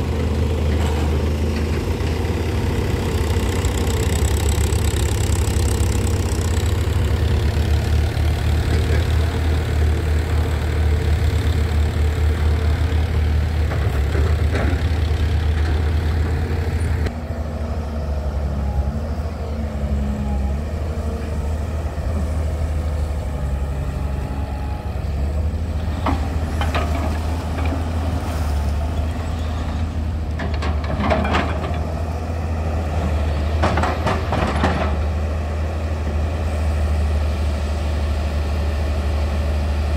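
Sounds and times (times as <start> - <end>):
tractor engine running: 0.0 - 17.5
excavator engine running: 0.0 - 39.9.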